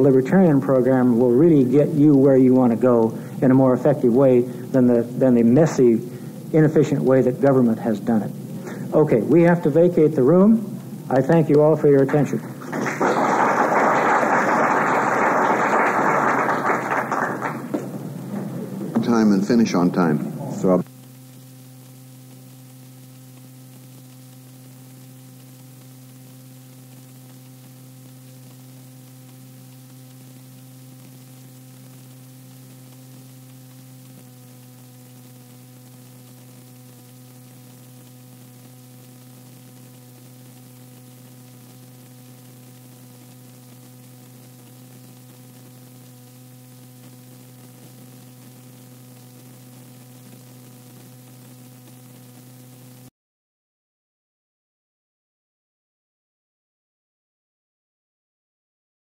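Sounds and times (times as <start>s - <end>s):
mains hum: 0.0s - 53.1s
tape hiss: 0.0s - 53.1s.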